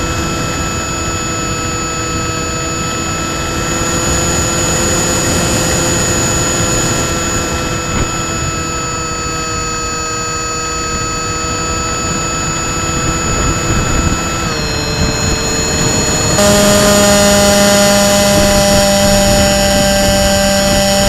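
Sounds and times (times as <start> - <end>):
electric motor and propeller whining: 0.0 - 21.0
wind rush: 12.0 - 21.0.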